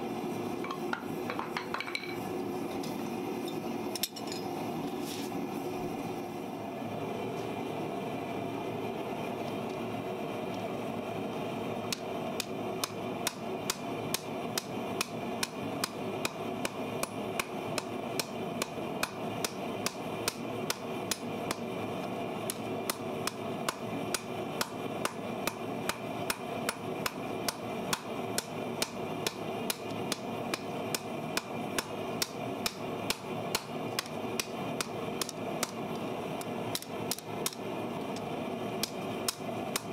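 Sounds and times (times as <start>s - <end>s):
hammer striking hot metal on anvil: 11.9s - 21.7s, 22.5s - 35.8s.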